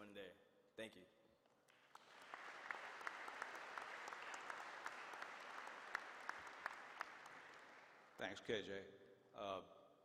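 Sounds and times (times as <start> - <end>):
audience applauding: 1.7 - 8.2.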